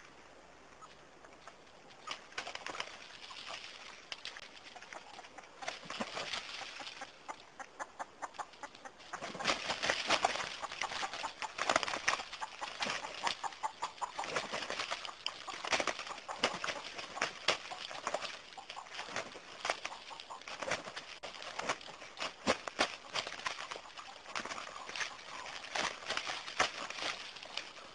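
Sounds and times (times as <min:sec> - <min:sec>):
wings flapping: 0:01.4 - 0:27.9
clucking: 0:04.7 - 0:27.2
feet scuffling in dry leaves: 0:09.1 - 0:27.9.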